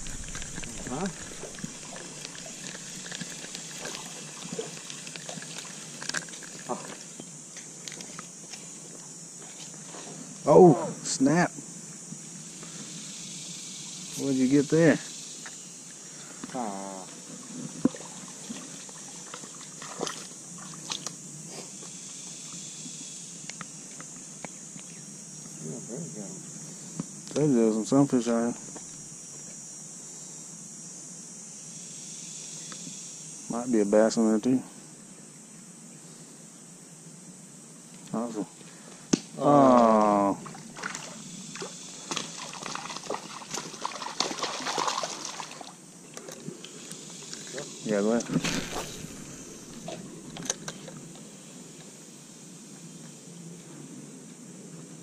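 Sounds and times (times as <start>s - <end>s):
high insect drone: 0.0s - 55.0s
dog splashing in water: 42.1s - 45.8s.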